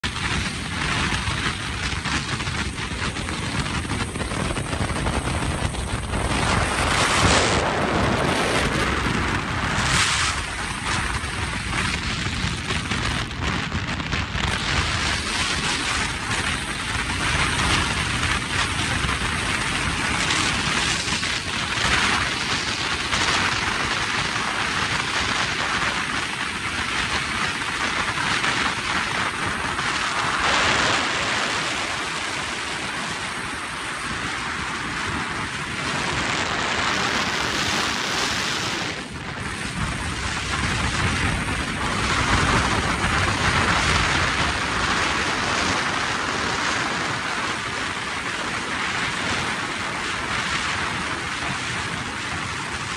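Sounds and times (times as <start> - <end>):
vehicle road noise: 0.0 - 52.9
wind buffeting microphone: 0.0 - 52.9.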